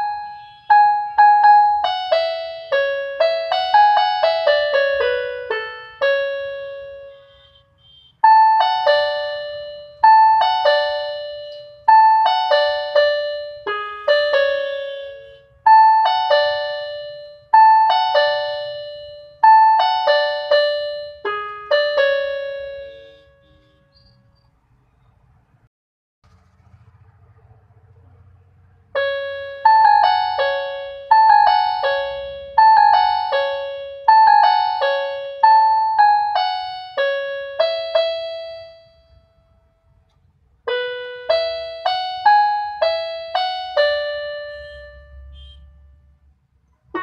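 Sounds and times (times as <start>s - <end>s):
chime-like keyboard melody: 0.0s - 7.6s, 8.2s - 24.1s, 29.0s - 39.6s, 40.7s - 45.5s.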